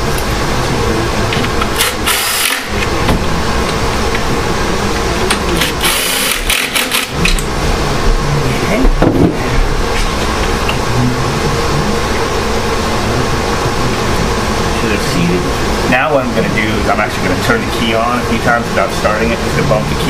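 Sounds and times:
loud steady background noise: 0:00.0 - 0:20.0
hand ratchet clicking: 0:05.6 - 0:07.5.

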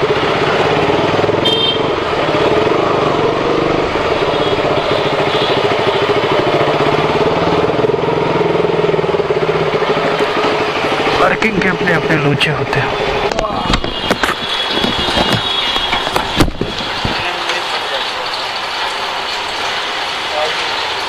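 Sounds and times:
motorcycle engine running at low revs: 0:00.0 - 0:11.3.

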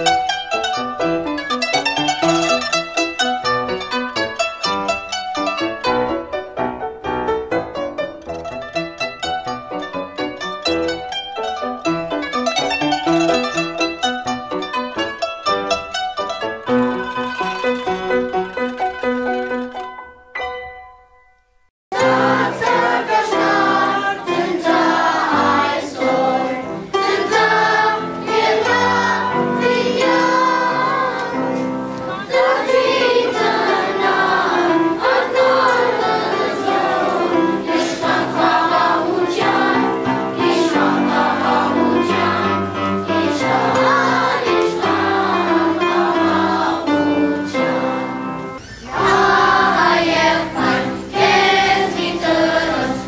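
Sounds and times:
children's choir singing: 0:21.9 - 0:53.0
choir singing: 0:21.9 - 0:53.0.

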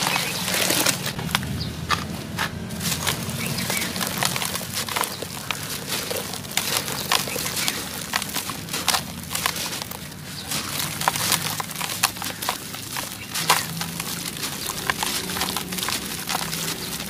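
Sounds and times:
hands crushing dry chunks: 0:00.0 - 0:17.0.

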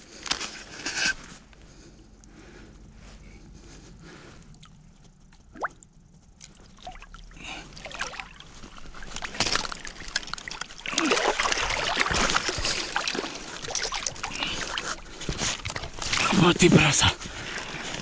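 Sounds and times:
water splashing and sloshing: 0:04.0 - 0:05.8, 0:06.4 - 0:18.0.

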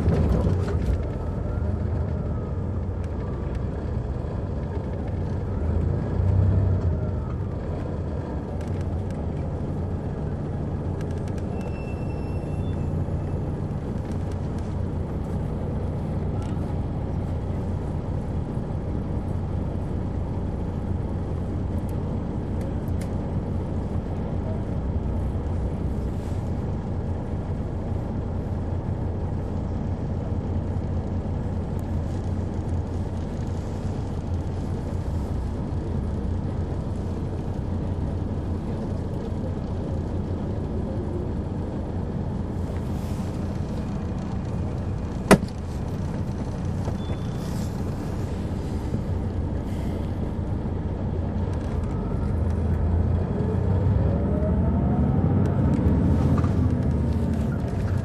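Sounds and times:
bus diesel engine droning: 0:00.0 - 0:58.0.

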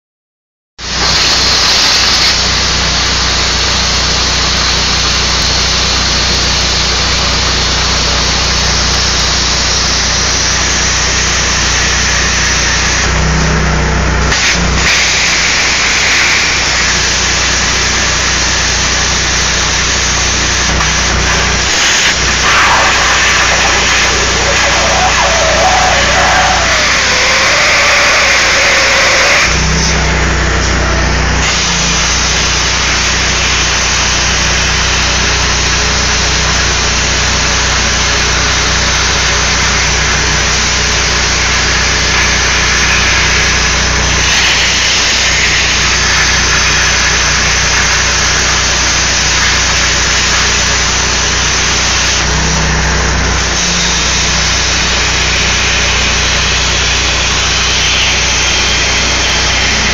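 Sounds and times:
plasma torch hissing: 0:14.3 - 0:30.8, 0:41.2 - 0:50.5, 0:54.1 - 0:59.9
low hum: 0:20.2 - 0:31.4.

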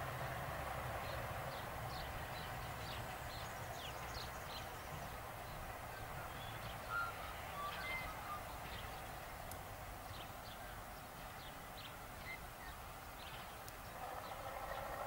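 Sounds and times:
railcar diesel engine droning: 0:00.0 - 0:09.4
birds chirping: 0:01.0 - 0:09.4, 0:10.0 - 0:15.0.

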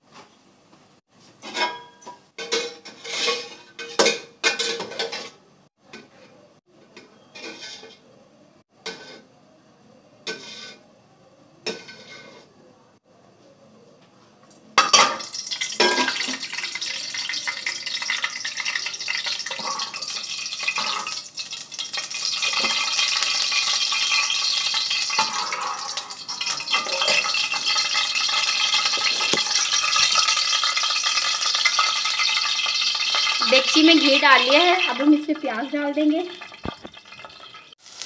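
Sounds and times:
metal ladle knocking and scraping pot: 0:01.4 - 0:05.4, 0:07.0 - 0:08.0, 0:08.8 - 0:09.3, 0:10.2 - 0:10.8, 0:11.7 - 0:12.5, 0:25.0 - 0:32.2
ghee sizzling in pot: 0:07.0 - 0:08.1, 0:08.7 - 0:09.4, 0:10.0 - 0:12.6, 0:15.2 - 0:38.0.

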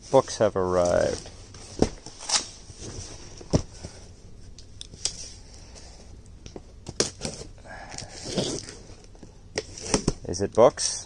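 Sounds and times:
knocks and rustles of boxes: 0:00.8 - 0:04.1.

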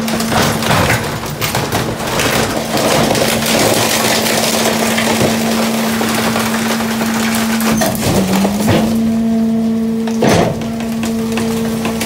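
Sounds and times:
cardboard and wood crunching: 0:00.0 - 0:09.3
hydraulic hum: 0:00.0 - 0:12.0.

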